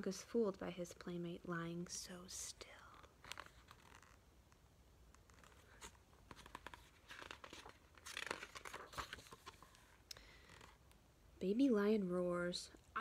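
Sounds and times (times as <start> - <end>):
book pages turning: 2.7 - 10.9.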